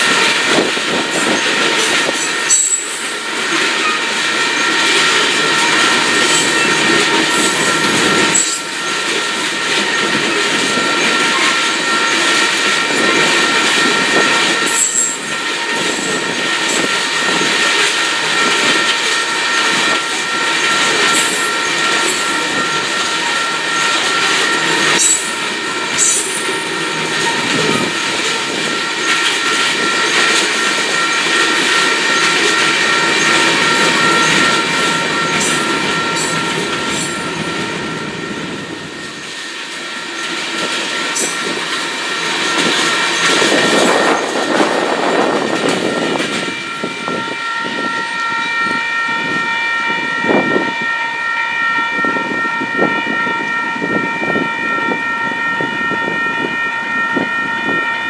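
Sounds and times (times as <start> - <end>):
train wheels clacking over rail joints: 0.0 - 37.8, 39.0 - 47.2
crossing bell ringing: 0.0 - 58.0.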